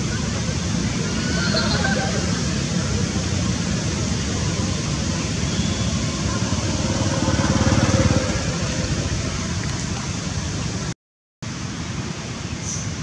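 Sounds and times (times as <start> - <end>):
noisy rumble: 0.0 - 10.9
vehicle engine running: 4.8 - 10.6.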